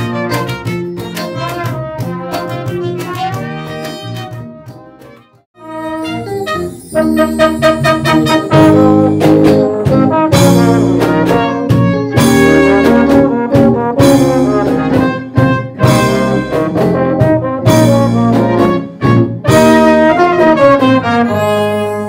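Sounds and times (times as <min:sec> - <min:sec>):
drums: 0:00.0 - 0:05.1, 0:06.6 - 0:22.0
electric guitar: 0:00.0 - 0:22.0
trumpet and tuba: 0:00.0 - 0:22.0
electric bass: 0:07.1 - 0:21.4.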